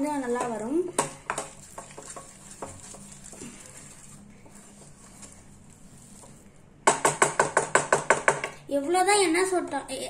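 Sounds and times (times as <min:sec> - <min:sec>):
spatula tapping and scraping pan: 0:00.0 - 0:05.4, 0:06.2 - 0:08.6
faint stirring of paste: 0:00.0 - 0:08.6.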